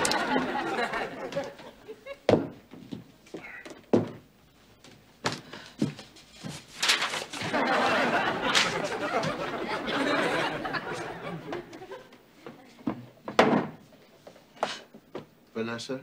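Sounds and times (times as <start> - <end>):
audience laughing: 0.0 - 2.3, 7.4 - 12.2
heavy footsteps on wooden stairs: 2.2 - 6.6.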